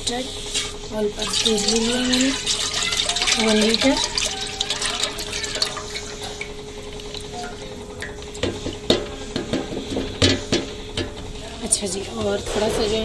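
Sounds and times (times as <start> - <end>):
milk trickling into a pot: 1.2 - 8.9
knocks and clatters of pot: 1.3 - 11.3.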